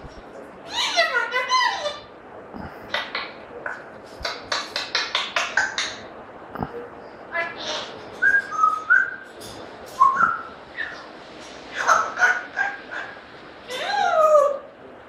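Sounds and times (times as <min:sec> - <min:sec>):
parrot calling: 0:00.6 - 0:02.1, 0:02.9 - 0:03.4, 0:07.3 - 0:09.2, 0:10.0 - 0:14.7
parrot whistling: 0:10.0 - 0:11.0.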